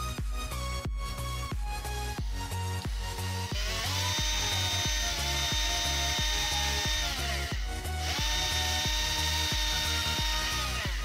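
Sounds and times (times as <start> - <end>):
background music with beat: 0.0 - 11.0
cordless drill whining: 0.7 - 11.0.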